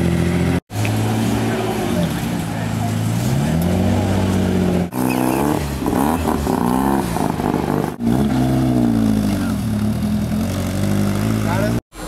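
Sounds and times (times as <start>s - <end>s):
car engine revving and driving off: 0.0s - 12.0s.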